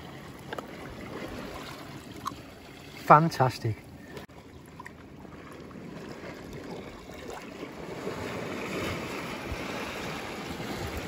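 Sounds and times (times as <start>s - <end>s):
sea washing over rocks: 5.6s - 11.0s.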